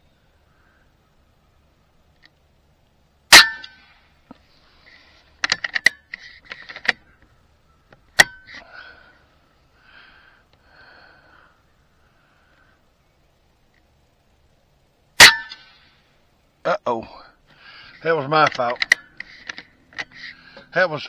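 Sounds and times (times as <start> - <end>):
air rifle shot crack: 15.2 - 15.9.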